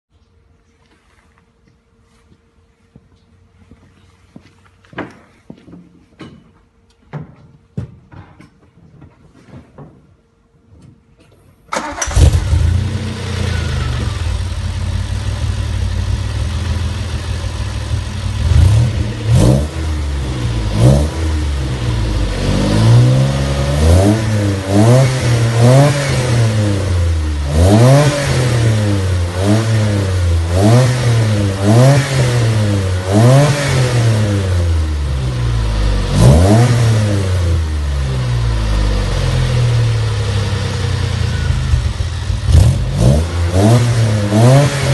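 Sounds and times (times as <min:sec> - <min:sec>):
car engine starting: 0:11.7 - 0:44.9
car engine idling: 0:11.8 - 0:25.7, 0:37.2 - 0:44.9
engine revving: 0:11.8 - 0:44.9.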